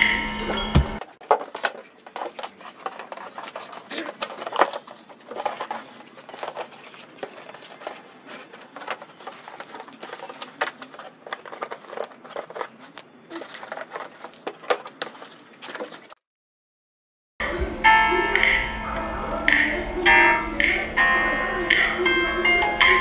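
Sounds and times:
plastic bag crinkling and rustling: 1.1 - 16.1.

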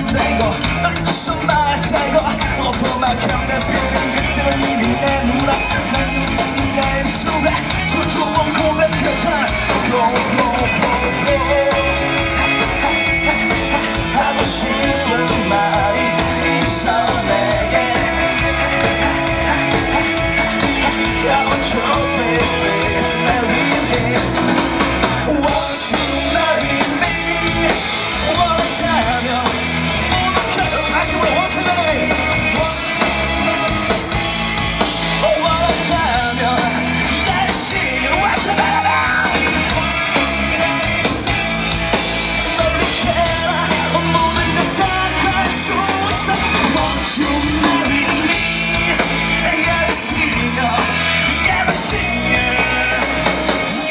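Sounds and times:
live rock band playing: 0.0 - 53.9.

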